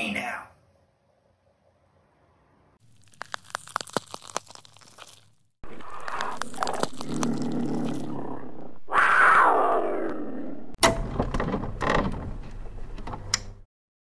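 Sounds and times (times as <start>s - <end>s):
crunching and chewing: 2.8s - 8.8s.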